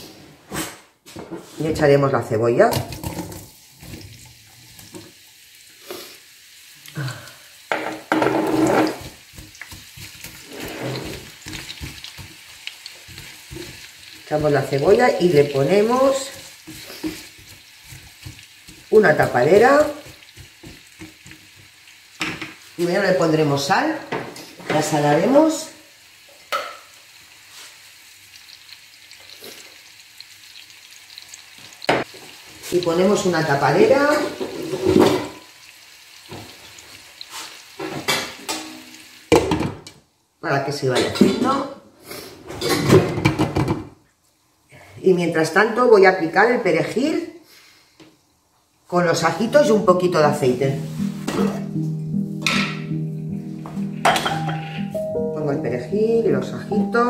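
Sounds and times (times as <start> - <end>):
onion sizzling in hot oil: 1.6 - 42.4, 44.3 - 55.1
spatula stirring in frying pan: 7.6 - 22.8
spatula scraping glass bowl: 10.2 - 11.4.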